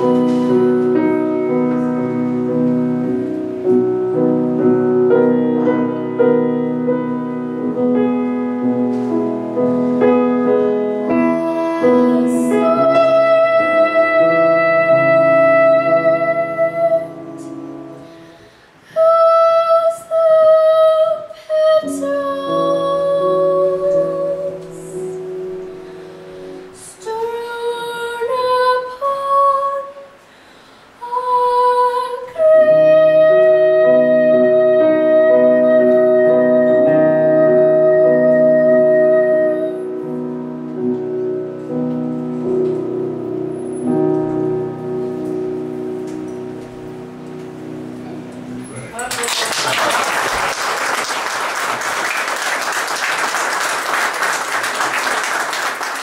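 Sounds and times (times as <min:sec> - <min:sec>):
piano accompaniment: 0:00.0 - 0:30.2, 0:31.0 - 0:56.0
boy singing: 0:11.1 - 0:17.5, 0:18.9 - 0:25.2, 0:26.8 - 0:30.1, 0:31.0 - 0:39.8
audience clapping: 0:48.9 - 0:56.0.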